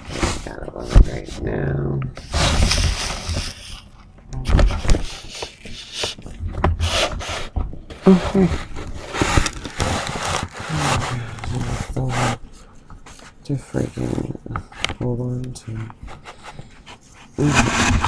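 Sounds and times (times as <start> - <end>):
wordless voice sounds: 0.0 - 2.6, 8.0 - 8.7, 10.6 - 12.5, 13.4 - 16.0, 17.4 - 18.0.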